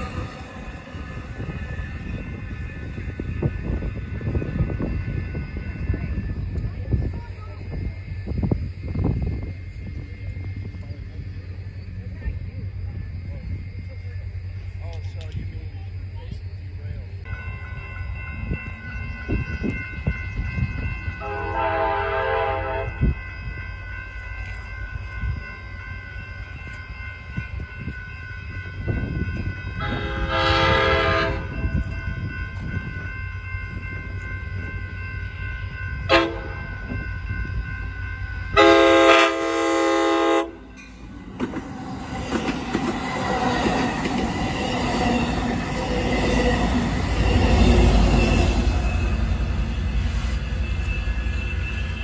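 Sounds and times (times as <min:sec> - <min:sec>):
train wheels rumbling on rails: 0:00.0 - 0:52.0
train horn: 0:21.1 - 0:23.8, 0:29.7 - 0:31.9, 0:36.0 - 0:37.1, 0:38.5 - 0:40.7.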